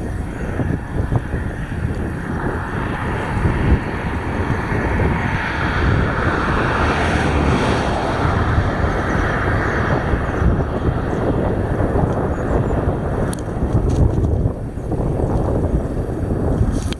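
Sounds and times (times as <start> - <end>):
wind buffeting microphone: 0.0 - 16.9.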